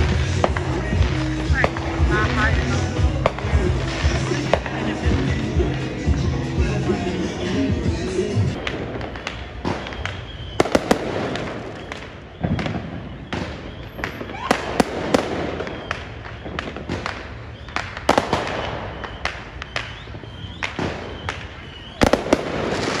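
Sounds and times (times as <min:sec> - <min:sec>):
fireworks bangs and pops: 0:00.0 - 0:23.0.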